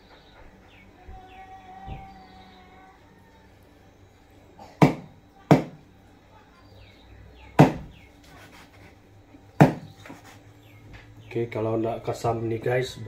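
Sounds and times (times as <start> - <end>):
knife chopping on wooden board: 4.8 - 5.8, 7.6 - 7.9, 9.6 - 9.9.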